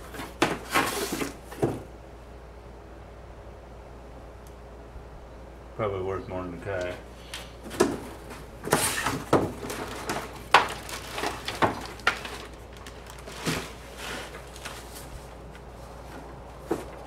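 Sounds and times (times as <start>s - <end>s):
cardboard and plastic packaging rustling: 0.0s - 1.9s, 6.8s - 17.0s.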